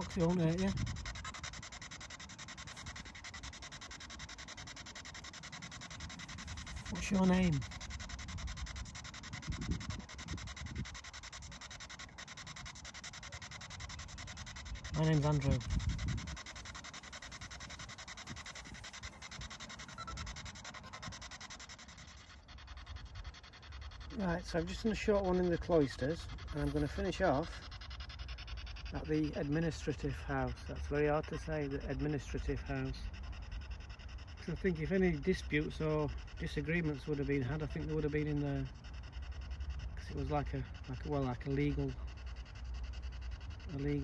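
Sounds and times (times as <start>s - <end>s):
pulsing radio static: 0.0s - 27.8s, 28.9s - 33.1s.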